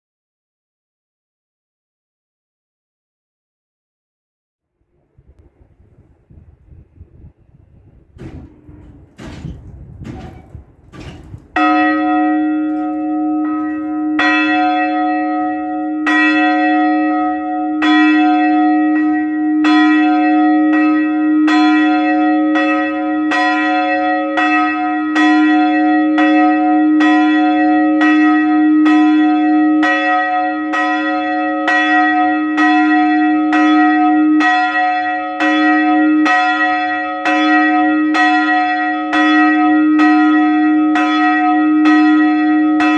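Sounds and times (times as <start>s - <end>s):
knocks: 8.2s - 11.7s
church bells pealing: 11.4s - 42.9s.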